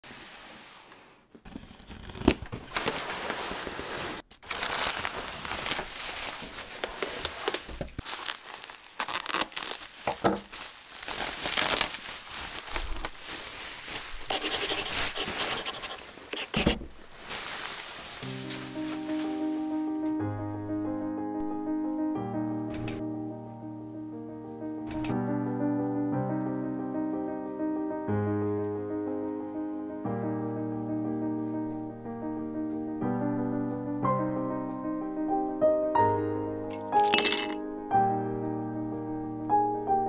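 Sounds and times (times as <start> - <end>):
packaging crinkling and tearing: 1.6 - 16.0, 17.0 - 19.4.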